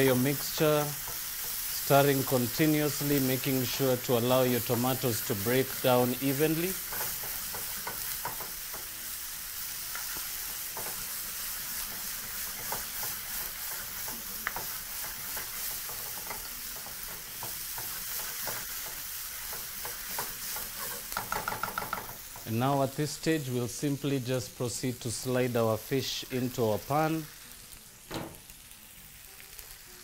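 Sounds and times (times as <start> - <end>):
sauce sizzling in a frying pan: 0.0 - 30.0
spatula scraping a pan: 9.9 - 22.5.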